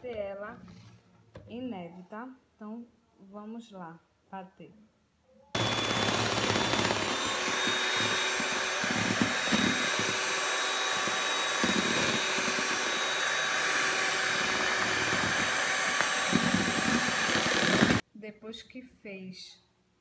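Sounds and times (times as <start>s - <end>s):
electric hand mixer whining: 5.6s - 18.0s.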